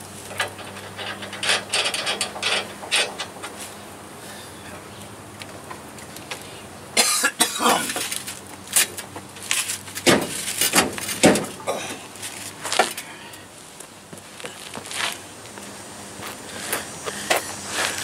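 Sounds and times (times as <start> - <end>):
metal hitch knocking and scraping: 0.0 - 3.8, 7.4 - 13.5
man grunting with effort: 11.6 - 12.1.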